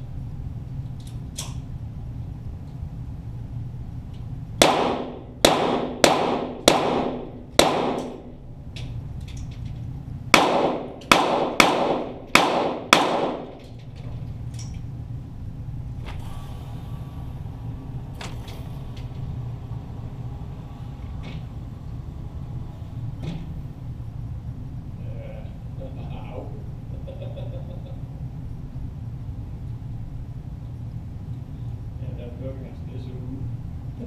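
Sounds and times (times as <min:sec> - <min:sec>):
steady low hum: 0:00.0 - 0:34.0
pistol shots with ringing echo: 0:04.6 - 0:08.3, 0:10.3 - 0:13.6.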